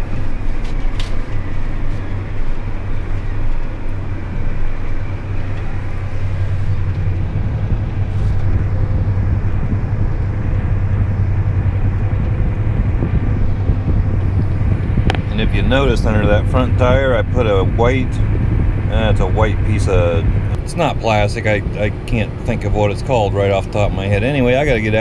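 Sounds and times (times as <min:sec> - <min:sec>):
tractor diesel engine running: 0:00.0 - 0:25.0.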